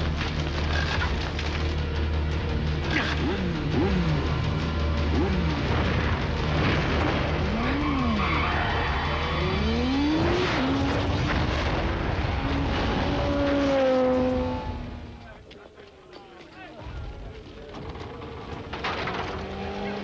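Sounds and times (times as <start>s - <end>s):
motorcycle engine revving: 2.3s - 15.2s, 18.0s - 20.0s.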